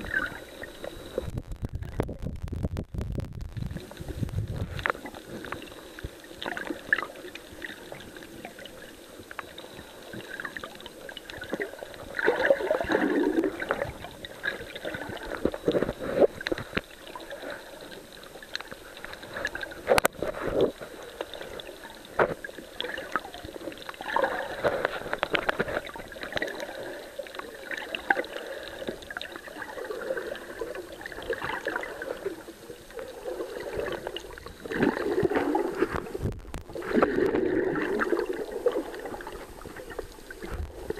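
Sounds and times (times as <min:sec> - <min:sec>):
underwater water swishing: 0:00.0 - 0:40.9
clicks and crackles: 0:00.1 - 0:12.3, 0:13.0 - 0:28.2, 0:33.8 - 0:38.1.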